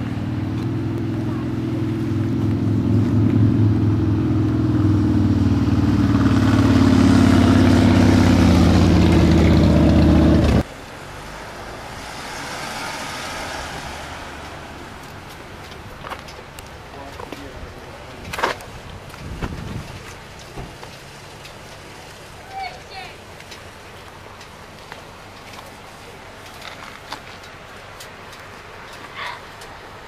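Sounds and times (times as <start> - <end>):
vehicle engine humming: 0.0 - 30.0.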